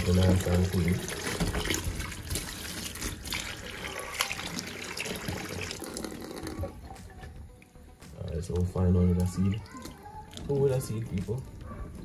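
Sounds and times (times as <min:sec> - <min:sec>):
water running and trickling: 0:00.0 - 0:12.0.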